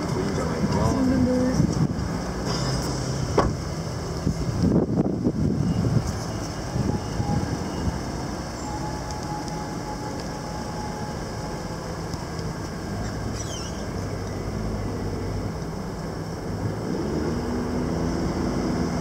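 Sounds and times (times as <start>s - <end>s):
low engine hum: 0.0s - 19.0s.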